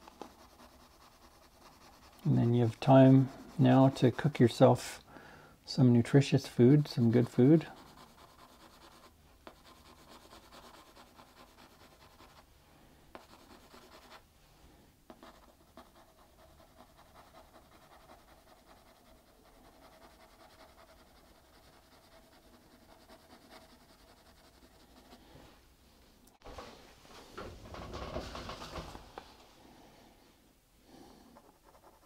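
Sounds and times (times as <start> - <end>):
pencil scratching on paper: 0.0 - 4.6, 7.1 - 12.5, 13.1 - 14.2, 15.1 - 25.2, 31.3 - 32.0.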